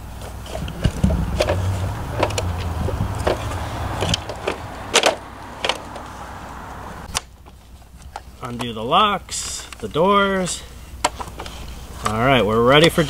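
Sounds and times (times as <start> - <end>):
low rumble: 0.4 - 7.1.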